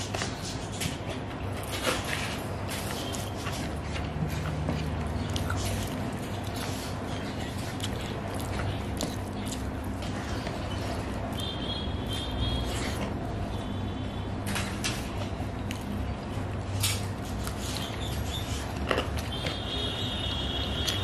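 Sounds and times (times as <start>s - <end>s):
fingers squishing wet food: 1.8s - 13.4s.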